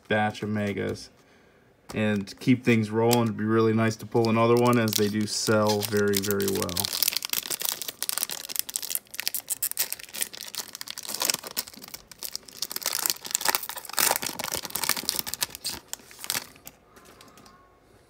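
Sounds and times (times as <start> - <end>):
card pack wrapper crinkling: 3.1 - 16.8.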